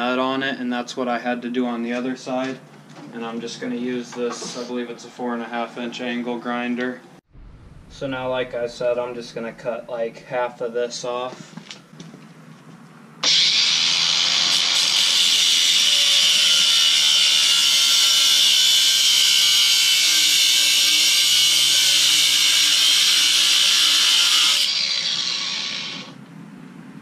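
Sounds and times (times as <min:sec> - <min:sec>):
angle grinder cutting metal: 0:13.2 - 0:26.2.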